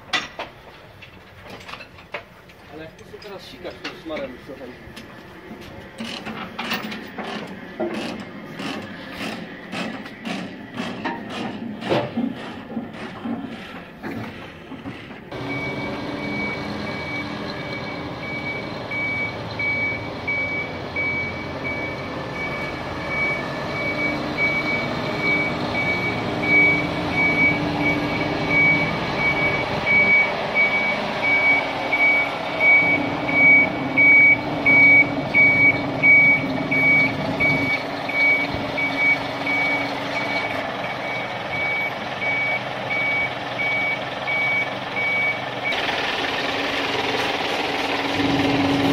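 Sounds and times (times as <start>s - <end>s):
diesel truck engine running: 2.3s - 48.9s
reversing alarm beeping: 15.3s - 45.9s.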